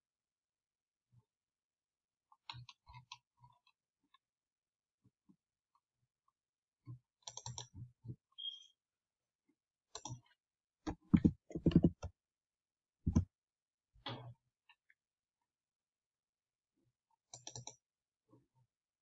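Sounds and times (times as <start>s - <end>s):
computer mouse clicks: 7.2s - 7.7s, 9.9s - 10.2s, 10.9s - 12.1s, 17.3s - 17.8s
keyboard keystrokes: 10.9s - 12.1s.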